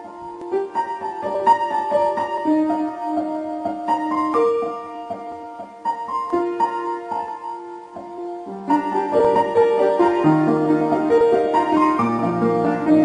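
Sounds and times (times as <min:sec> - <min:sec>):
piano melody: 0:00.0 - 0:13.0.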